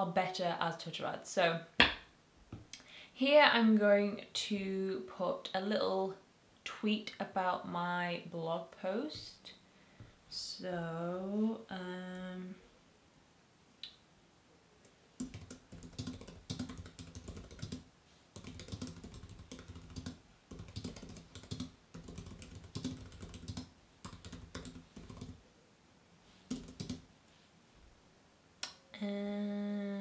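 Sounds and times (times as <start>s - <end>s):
keyboard typing: 15.2s - 17.8s, 18.4s - 25.4s, 26.5s - 27.0s.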